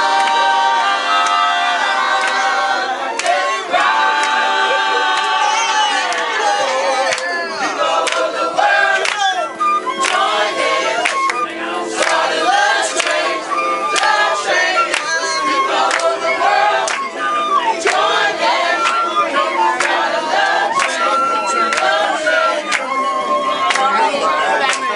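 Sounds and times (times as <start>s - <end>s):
flute: 0.0s - 24.9s
group of people singing: 0.0s - 24.9s
hand claps: 0.2s - 0.4s, 1.1s - 1.5s, 2.2s - 2.4s, 3.1s - 13.3s, 13.9s - 16.2s, 16.8s - 17.1s, 17.8s - 19.1s, 19.8s - 20.0s, 20.7s - 23.0s, 23.6s - 24.9s.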